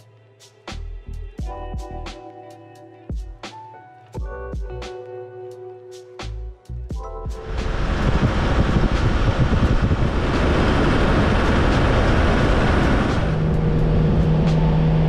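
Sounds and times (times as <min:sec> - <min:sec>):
wind rushing: 0:07.3 - 0:15.0
road noise: 0:07.4 - 0:15.0.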